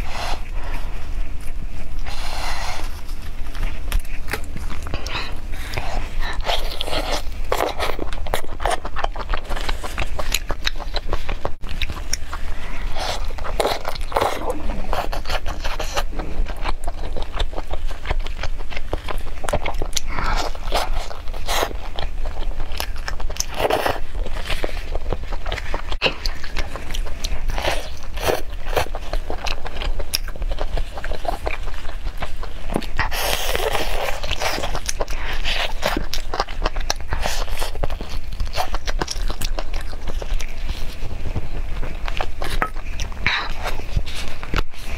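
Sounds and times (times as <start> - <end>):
plastic gloves scraping: 0.0 - 8.3
crackly rustle: 0.0 - 44.9
person chewing food: 0.0 - 44.9
meat tearing: 2.8 - 44.9.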